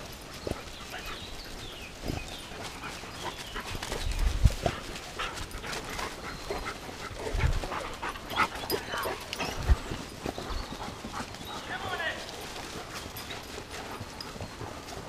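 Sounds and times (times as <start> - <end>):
crunching footsteps: 0.0 - 15.0
hounds yelping: 0.0 - 15.0
rustling through dry leaves: 0.0 - 15.0.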